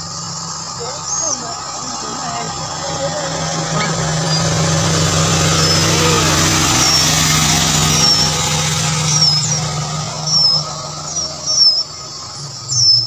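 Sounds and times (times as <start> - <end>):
high bird chirps: 0.0 - 13.0
steady low hum and rushing: 0.0 - 13.0.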